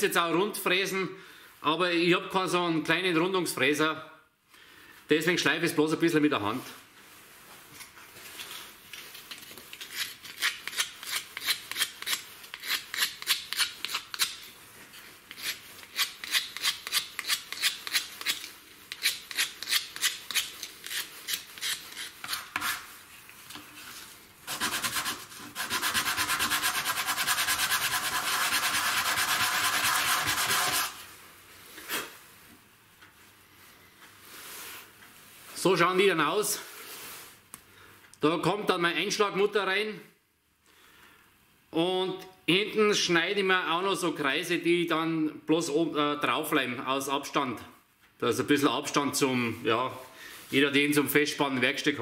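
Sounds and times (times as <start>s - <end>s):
steady sandpaper rubbing: 24.5s - 31.0s
sandpaper scraping wood: 24.5s - 31.1s.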